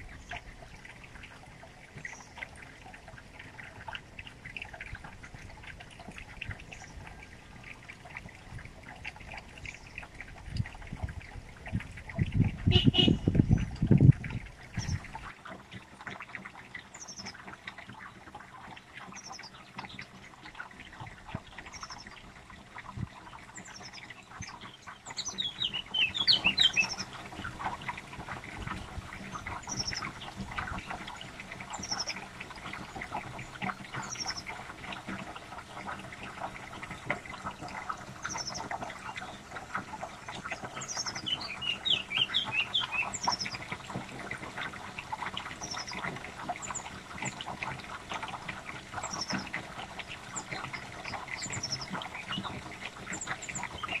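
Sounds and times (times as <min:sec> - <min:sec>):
young birds begging calls: 0:25.2 - 0:27.1, 0:40.9 - 0:43.6.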